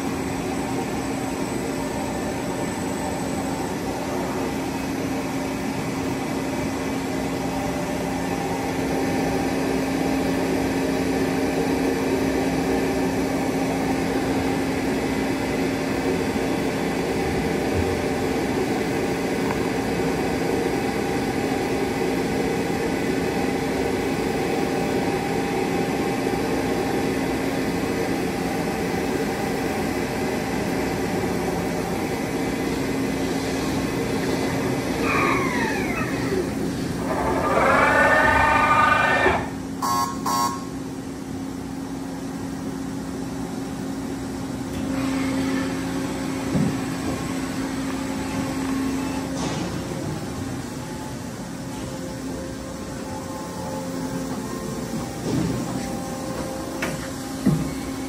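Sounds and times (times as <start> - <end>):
boring mill machine hum: 0.0 - 58.0.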